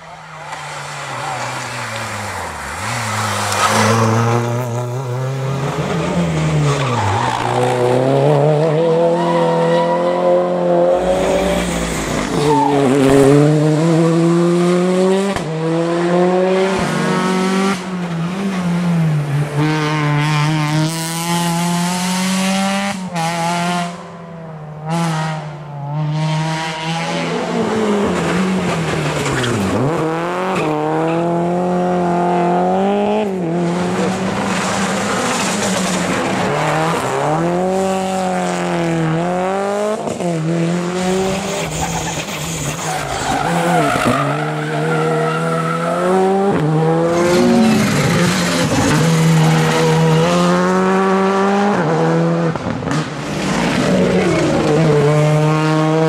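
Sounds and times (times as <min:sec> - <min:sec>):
rally car engines revving: 0:00.0 - 0:56.0
tyre squeal: 0:11.2 - 0:13.3, 0:41.2 - 0:46.5.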